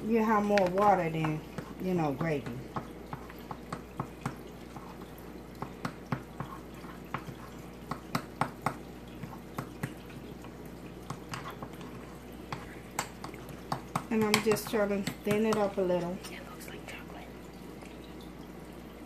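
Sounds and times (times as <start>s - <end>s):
wet stirring of thick mix: 0.0s - 17.0s.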